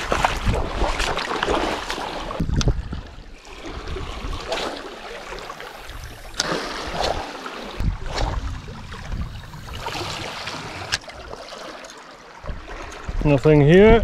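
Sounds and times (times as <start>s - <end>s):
wind buffeting microphone: 0.0s - 1.1s, 2.2s - 4.5s, 5.8s - 11.3s, 12.4s - 14.0s
water splashing around boots: 0.0s - 13.2s.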